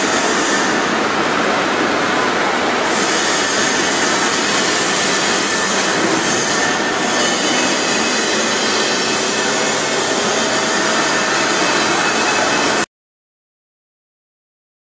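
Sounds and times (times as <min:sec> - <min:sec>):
welding machine hissing: 0:02.8 - 0:12.8.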